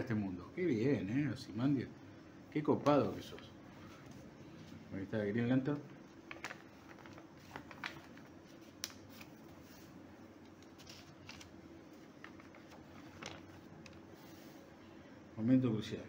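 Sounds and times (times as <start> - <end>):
low steady hum: 0.0 - 16.0
paper pages turning: 6.2 - 14.6.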